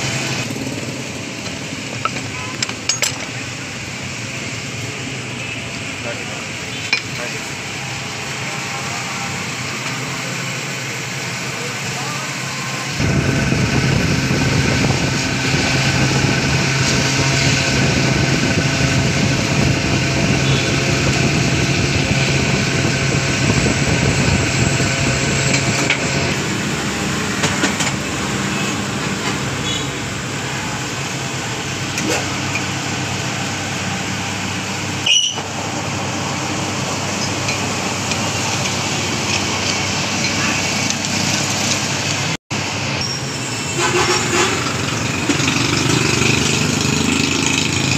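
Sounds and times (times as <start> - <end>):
workshop background noise: 0.0 - 47.9
motor humming: 12.8 - 30.4.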